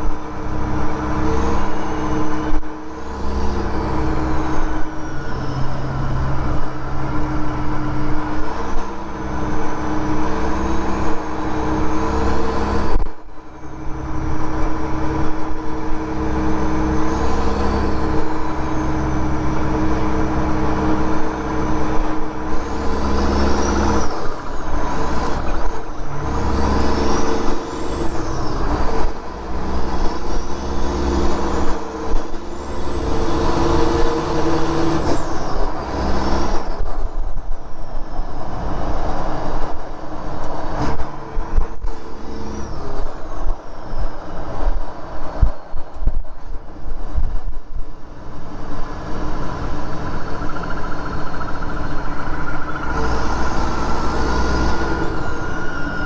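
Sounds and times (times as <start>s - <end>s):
diesel truck engine drone: 0.0s - 56.0s
turbocharger whistle: 50.3s - 56.0s.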